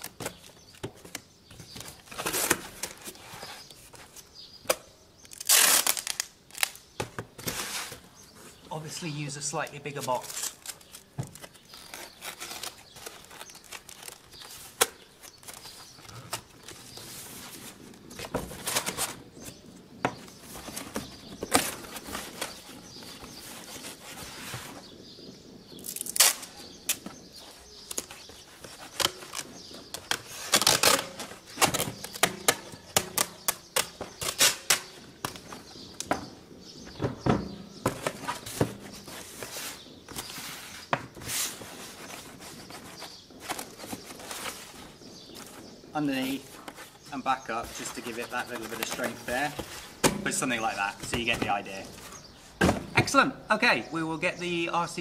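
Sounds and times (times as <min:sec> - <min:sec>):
tape ripping off roll: 0:00.0 - 0:03.4, 0:04.7 - 0:08.0, 0:25.8 - 0:27.1, 0:27.9 - 0:35.6
cardboard rustling and crinkling: 0:00.0 - 0:04.4, 0:09.8 - 0:53.2.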